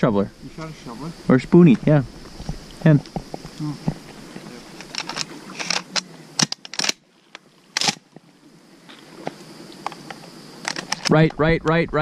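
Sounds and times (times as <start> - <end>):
sharp handling clicks and knocks: 4.8 - 7.0, 9.9 - 11.1.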